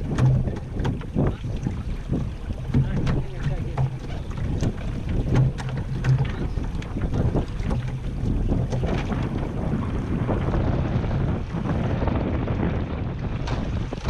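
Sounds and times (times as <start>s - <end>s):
short knocks and slaps: 0.0s - 1.4s, 2.6s - 8.1s
water splashing against hull: 0.0s - 14.0s
wind on microphone: 0.0s - 14.0s.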